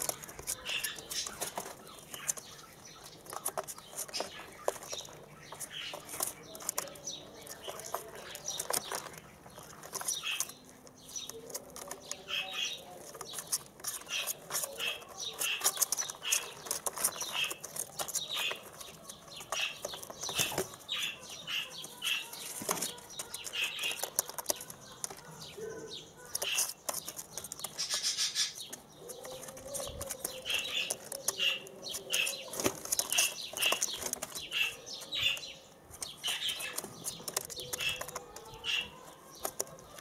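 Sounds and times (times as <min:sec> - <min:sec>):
wings fluttering: 0:26.2 - 0:35.4.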